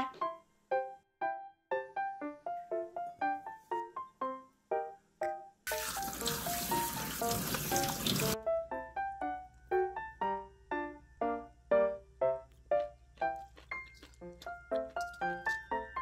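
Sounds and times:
light piano music: 0.0 - 16.0
tap water spraying into colander: 5.7 - 8.4.

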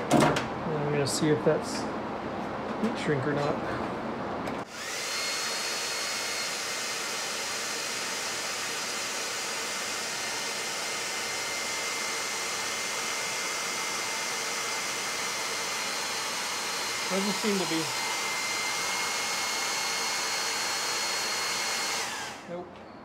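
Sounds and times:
heat gun blowing air: 4.6 - 22.5.

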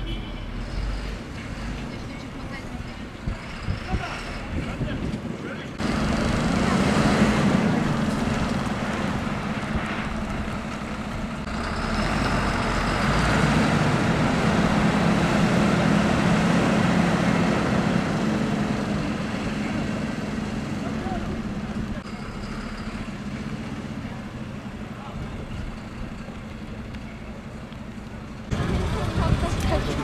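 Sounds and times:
fire engine idling: 13.8 - 30.0.

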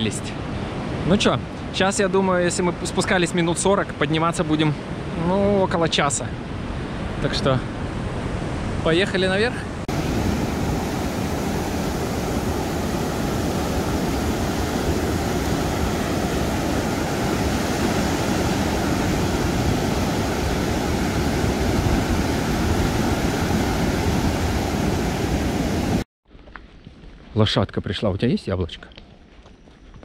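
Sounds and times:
water rushing: 8.3 - 26.1.

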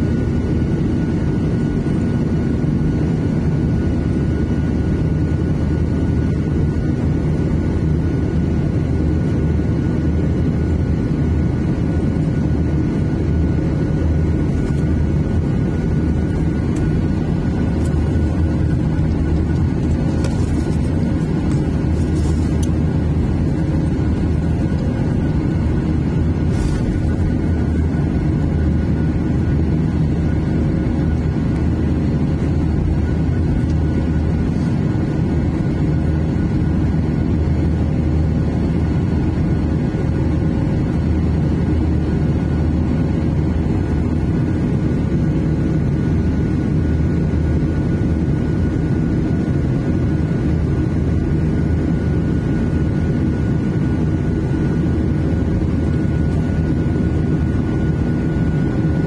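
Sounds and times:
jet engine rumble: 0.0 - 59.0
rushing airflow: 14.1 - 31.0.

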